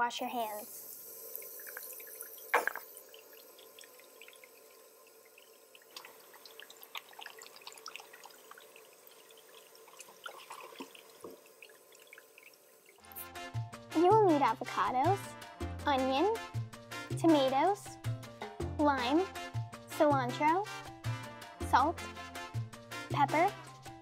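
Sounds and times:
water trickling from faucet: 0.0s - 13.2s
water drips into basin: 1.2s - 13.0s.

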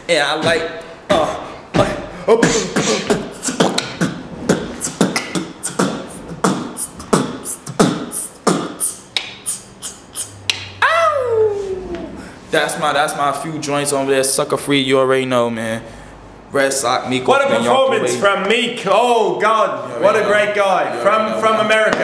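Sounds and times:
man beatboxing: 0.2s - 13.2s.

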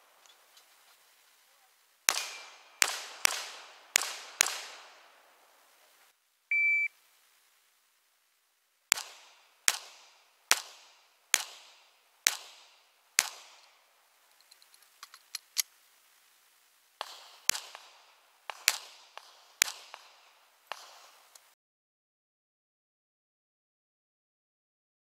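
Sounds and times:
pistol reload clicks: 2.1s - 4.9s
pistol shots with echo: 2.1s - 5.8s, 8.9s - 13.8s, 17.0s - 21.3s.

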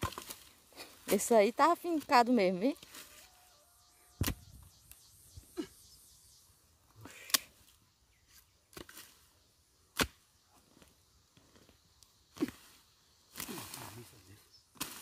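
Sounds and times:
hoe chopping into soil and roots: 0.0s - 1.3s, 4.2s - 4.5s, 8.7s - 9.2s, 9.9s - 10.2s, 12.3s - 12.7s, 14.7s - 15.0s.

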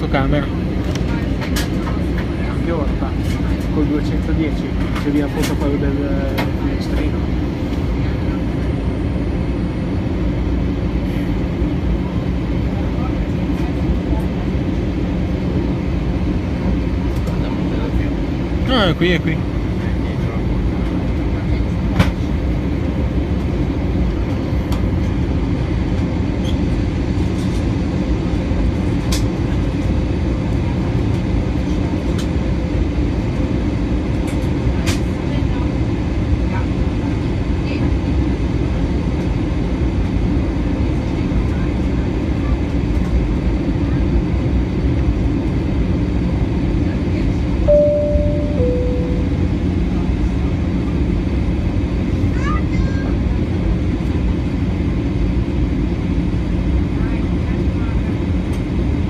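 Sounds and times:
airplane cabin rumble: 0.0s - 59.0s
two-note cabin chime: 47.7s - 49.7s.

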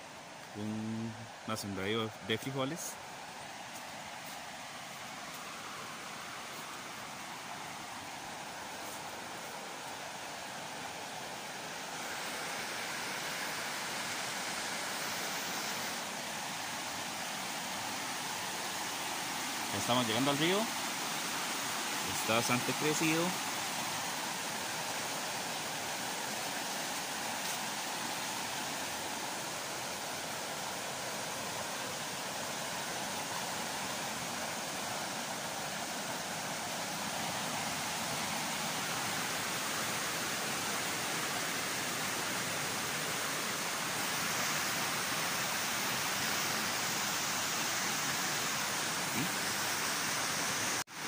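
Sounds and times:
river rushing over rocks: 0.0s - 51.0s.

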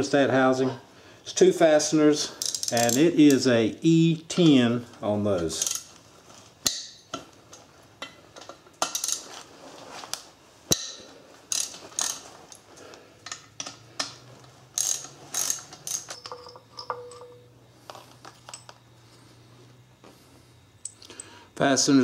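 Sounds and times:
hand ratchet clicking: 2.4s - 3.4s, 5.6s - 5.9s, 8.8s - 9.2s, 10.7s - 12.6s, 13.3s - 17.1s
metal clinks of tools: 14.8s - 18.8s, 20.8s - 21.4s.

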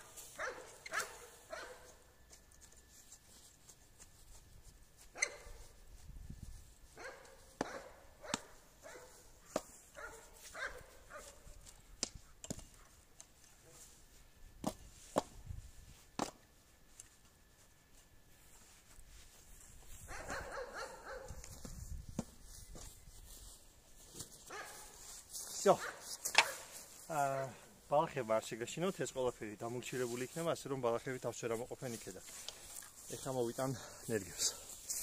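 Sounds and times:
dog barking: 0.4s - 2.0s, 5.2s - 5.6s, 7.0s - 11.4s, 20.1s - 21.4s, 24.5s - 25.0s, 25.8s - 26.7s.

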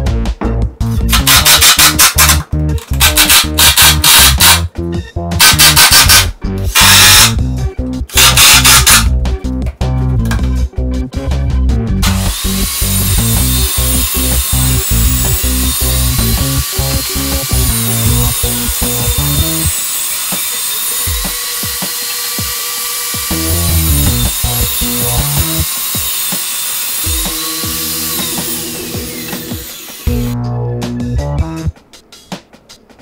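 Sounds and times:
blues background music: 0.0s - 33.0s
table saw ripping plywood: 1.1s - 4.7s, 5.4s - 7.4s, 8.2s - 9.1s, 12.0s - 30.3s.

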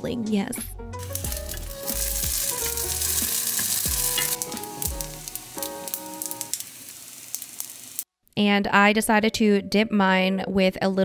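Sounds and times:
rice paper sizzling in oil: 1.0s - 8.1s.

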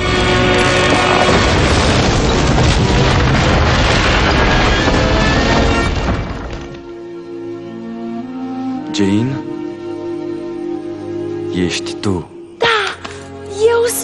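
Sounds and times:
dramatic cartoon music: 0.0s - 14.0s
boom-like blast: 1.0s - 6.5s.

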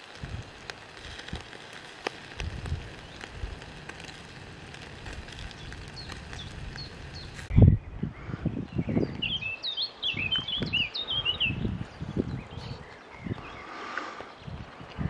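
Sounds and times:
wood fire crackling and popping: 0.0s - 7.7s, 10.1s - 15.0s
fire hiss: 0.0s - 9.5s, 10.1s - 15.0s
faint bird chirps: 5.6s - 14.6s.

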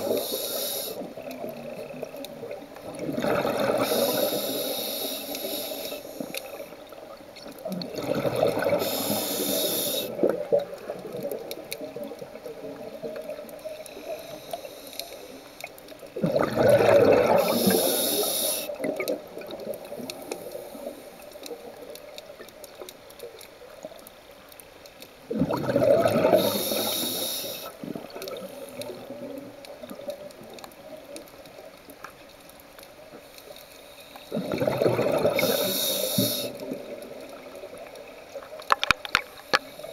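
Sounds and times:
diver breathing through regulator: 0.0s - 1.1s, 3.5s - 6.6s, 8.6s - 10.2s, 17.3s - 18.8s, 26.2s - 27.8s, 35.3s - 36.6s
underwater water noise: 0.0s - 39.9s
bubbles burbling: 1.4s - 3.9s, 7.6s - 8.8s, 16.2s - 17.6s, 25.3s - 26.4s, 34.4s - 35.6s.

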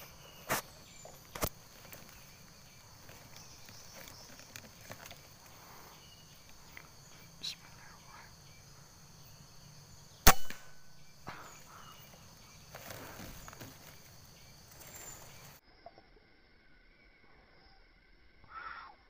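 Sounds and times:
faint rustling: 0.0s - 7.1s, 11.3s - 15.6s
air rifle shot: 10.2s - 12.0s.

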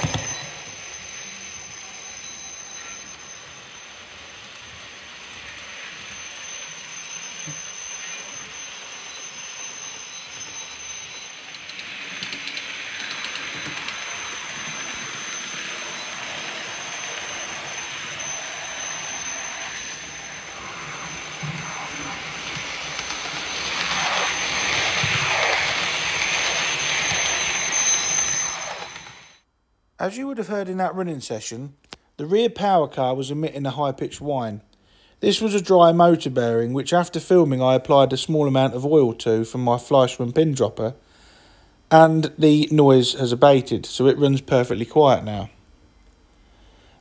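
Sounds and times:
high-pitched motor whine: 0.0s - 29.4s
model train wheels rumbling: 1.8s - 29.4s.

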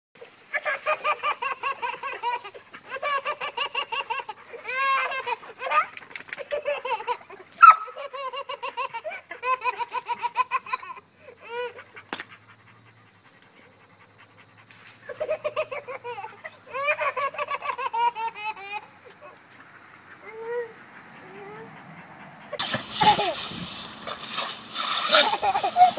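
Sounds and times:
baby giggling: 0.6s - 11.8s, 15.1s - 19.4s, 22.5s - 23.4s, 25.1s - 25.9s.

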